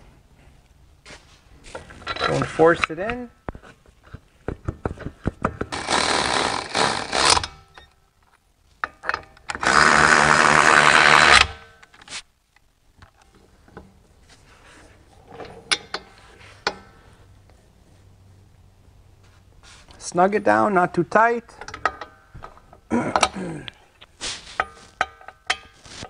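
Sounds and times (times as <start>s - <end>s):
cordless electric ratchet running: 5.7s - 7.4s, 9.6s - 11.5s.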